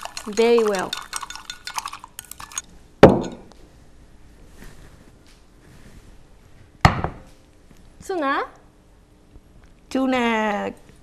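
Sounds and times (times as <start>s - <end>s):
utensil clinking against glass cup: 0.0s - 3.4s
loud knock on table: 6.8s - 7.2s.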